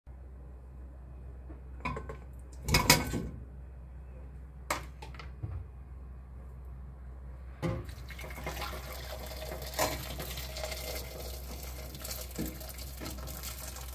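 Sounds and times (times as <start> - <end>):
low steady hum: 0.1 - 13.9
dishes and pots clinking: 1.8 - 3.3, 9.4 - 11.1.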